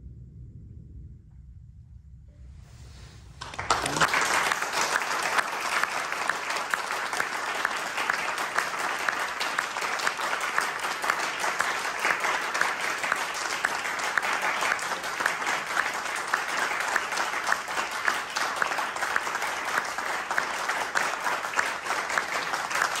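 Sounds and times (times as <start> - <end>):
audience applauding: 3.4 - 23.0.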